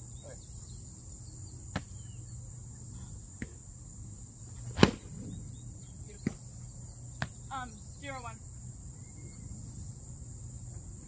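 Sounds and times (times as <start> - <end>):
insects droning: 0.0 - 11.0
foam swords striking: 4.8 - 5.1.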